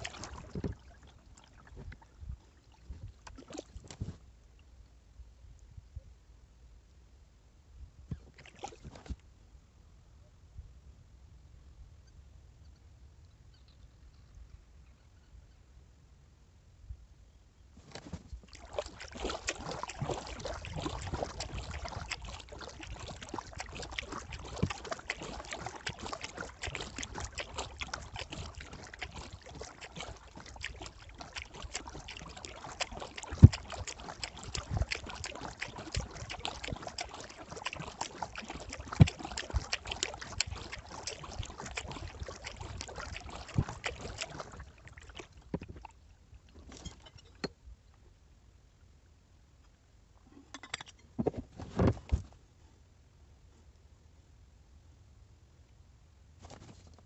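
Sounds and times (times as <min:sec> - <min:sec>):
water dripping: 0:00.0 - 0:02.0, 0:18.4 - 0:45.9
paddle splashing in water: 0:00.0 - 0:04.2, 0:08.1 - 0:09.2, 0:17.8 - 0:47.0.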